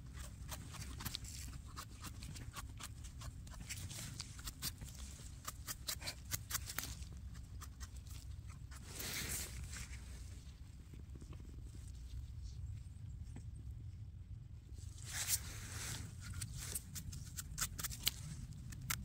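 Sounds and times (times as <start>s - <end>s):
knife scraping mushroom: 0.0s - 9.8s, 15.1s - 18.9s
brush rustling: 0.0s - 10.6s.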